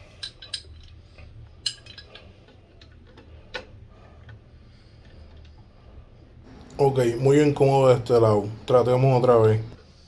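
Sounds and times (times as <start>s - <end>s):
wrench metal clicks and clinks: 0.1s - 1.0s, 1.6s - 3.7s.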